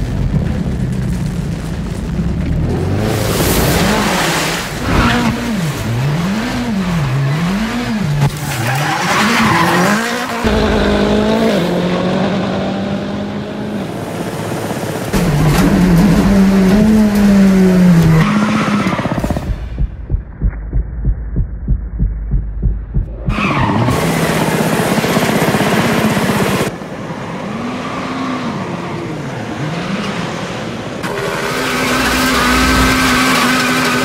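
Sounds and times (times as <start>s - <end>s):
car engine revving: 2.6s - 14.3s, 31.0s - 34.0s
tyres squealing and skidding: 8.2s - 10.6s, 18.1s - 19.2s, 23.1s - 24.6s, 31.0s - 34.0s.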